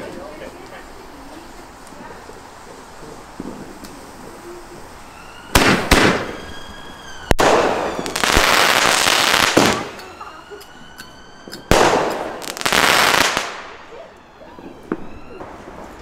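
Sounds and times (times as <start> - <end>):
fireworks crackling: 0.0 - 16.0
fireworks whistling downward: 2.9 - 16.0
fireworks shells bursting: 7.2 - 14.2.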